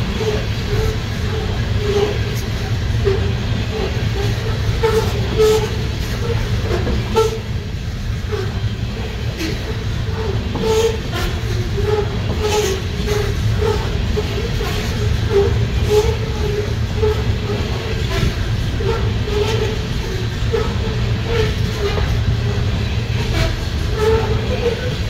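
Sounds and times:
train wheel clack: 0.0s - 25.0s
train wheels rumbling on rail: 0.0s - 25.0s
wheel squeals: 8.4s - 25.0s.

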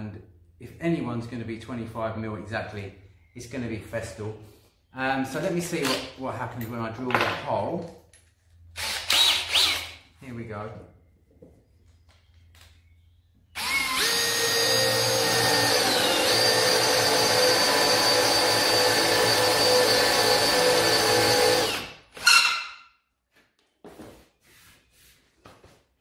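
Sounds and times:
cordless drill boring into wood: 8.8s - 10.0s, 13.6s - 22.7s.

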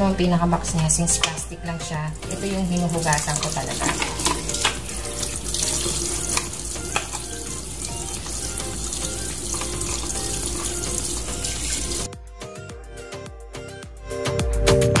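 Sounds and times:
music with plucked beat: 2.1s - 15.0s
tap water splashing on plastic: 2.3s - 12.1s.

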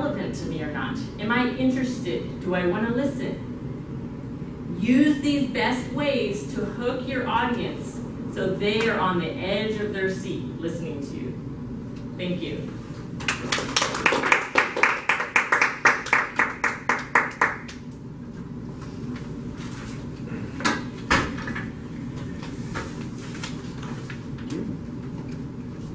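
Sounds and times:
audience clapping: 13.2s - 17.8s.

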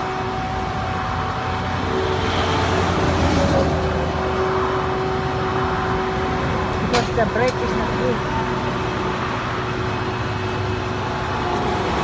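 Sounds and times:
truck engine hum: 0.0s - 12.0s.

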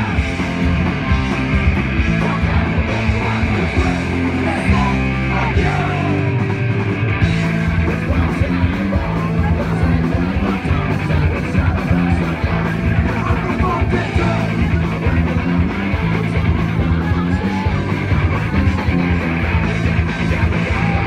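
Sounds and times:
punk rock band playing live: 0.0s - 21.0s.

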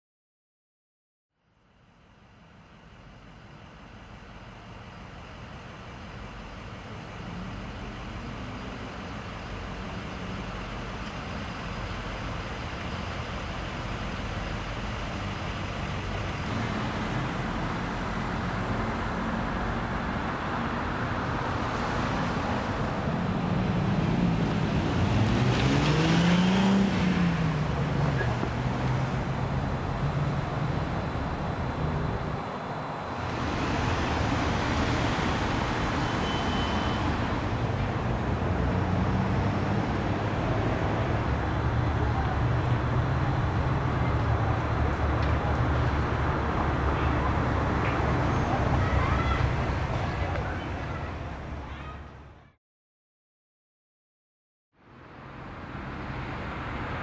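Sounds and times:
road traffic noise: 1.4s - 52.6s, 54.7s - 57.0s
vehicle engine passing: 21.6s - 36.2s, 36.9s - 51.4s.

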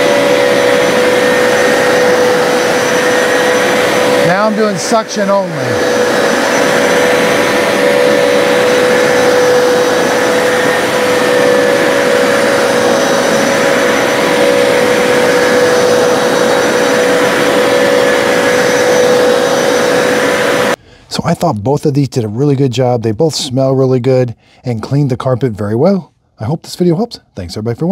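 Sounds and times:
carpet cleaner motor droning: 0.0s - 20.8s.

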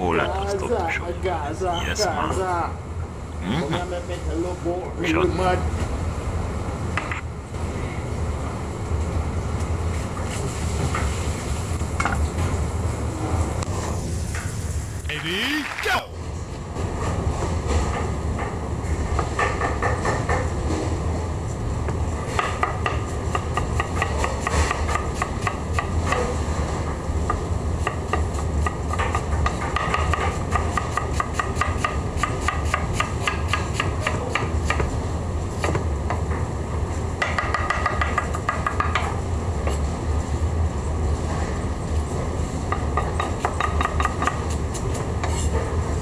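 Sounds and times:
knife chopping cabbage on cutting board: 27.8s - 34.9s.

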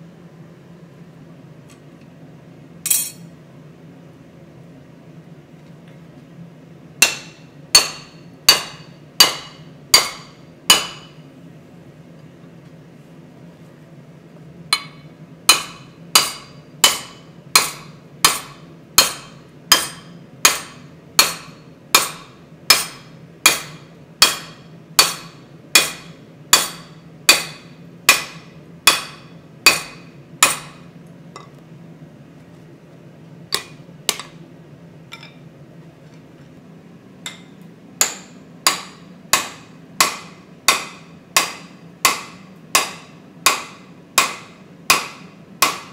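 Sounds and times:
steady low hum: 0.0s - 45.9s
hammer striking metal punch: 7.0s - 11.2s, 14.7s - 31.5s, 33.5s - 34.4s, 37.2s - 45.9s.

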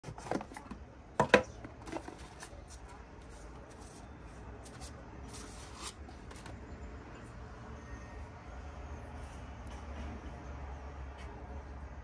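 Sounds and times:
cardboard and paper rustling: 0.0s - 0.8s, 1.7s - 6.6s.

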